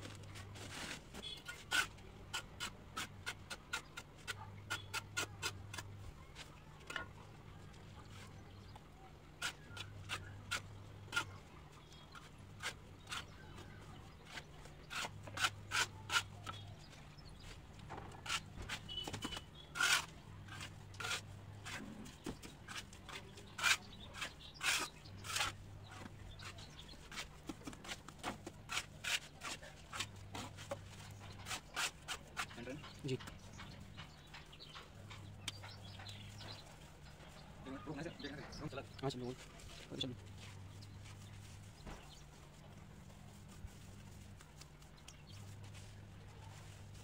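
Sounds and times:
hand tool scraping mortar: 0:00.0 - 0:07.1, 0:09.4 - 0:37.4.

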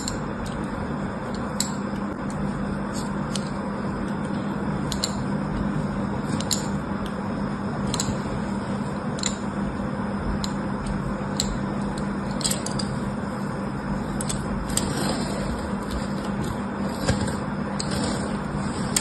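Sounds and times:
steady hiss and low hum: 0:00.0 - 0:19.0
tool scratching soap: 0:14.7 - 0:16.2, 0:16.8 - 0:19.0.

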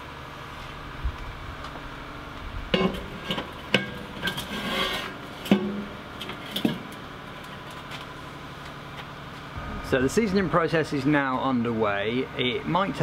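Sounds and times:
steel scraping on steel: 0:02.8 - 0:06.7.

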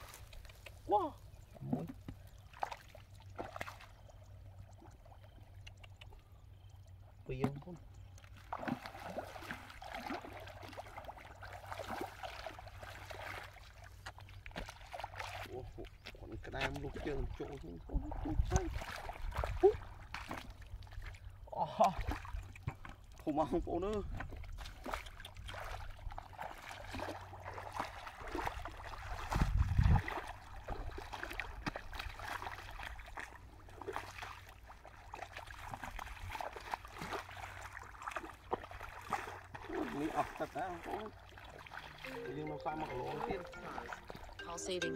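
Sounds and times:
feet wading through muddy water: 0:00.0 - 0:44.9.

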